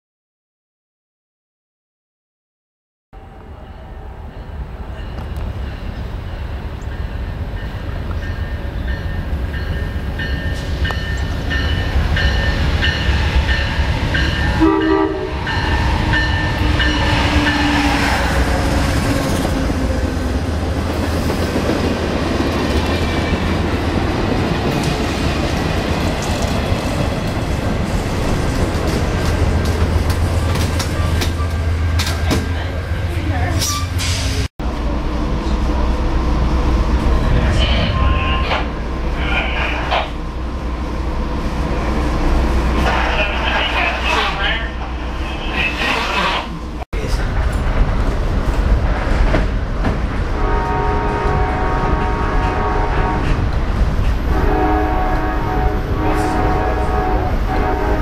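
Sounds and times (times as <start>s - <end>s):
diesel locomotive engine rumble: 3.2s - 58.0s
train horn: 13.1s - 18.7s, 50.4s - 53.4s, 54.3s - 58.0s.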